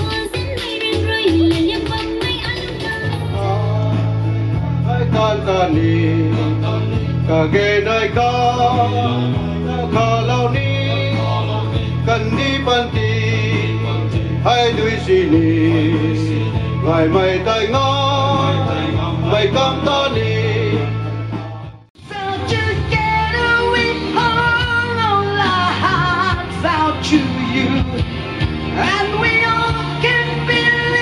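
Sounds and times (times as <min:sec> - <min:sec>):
low bass notes: 0:03.0 - 0:31.0
male vocal group singing: 0:03.2 - 0:31.0.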